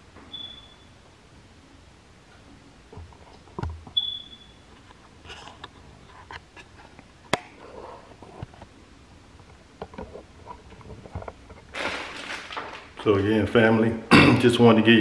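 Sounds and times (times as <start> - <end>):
rustling: 9.4 - 13.3.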